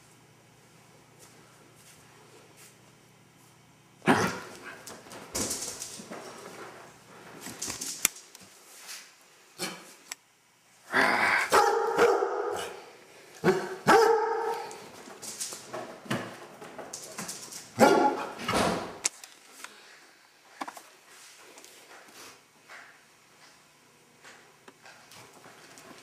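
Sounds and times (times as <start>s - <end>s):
dog barking in long barks: 11.5s - 12.8s, 13.4s - 14.7s, 17.8s - 18.4s.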